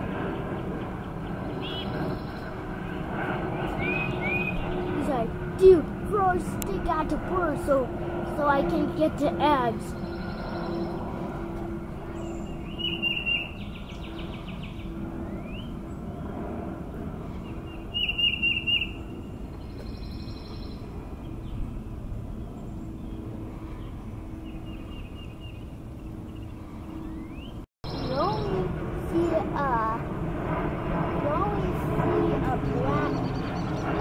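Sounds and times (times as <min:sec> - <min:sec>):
bird upward-sliding notes: 0:00.0 - 0:05.5, 0:09.3 - 0:16.4
small birds chipping rapidly: 0:00.1 - 0:07.7, 0:08.4 - 0:29.9, 0:32.3 - 0:34.0
soft bird trills: 0:09.9 - 0:11.1, 0:12.1 - 0:16.0, 0:17.4 - 0:21.6.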